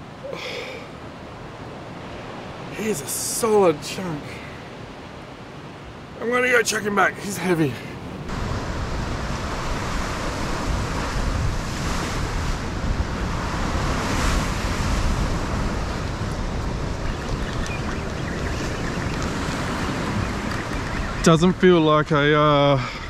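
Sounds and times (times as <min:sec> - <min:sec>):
ocean waves breaking on rocks: 0:00.1 - 0:23.0
wind rumbling on microphone: 0:08.1 - 0:23.0.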